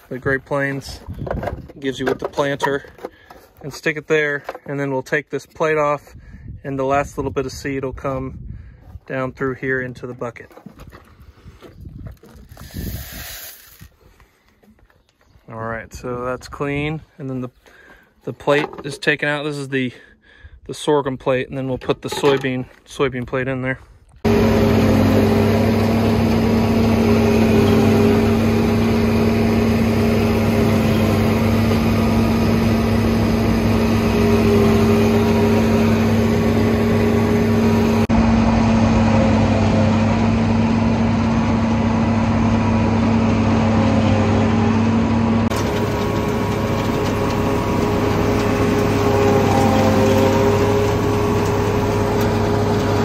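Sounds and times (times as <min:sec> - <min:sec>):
farm machine engine droning: 0:24.2 - 0:53.0.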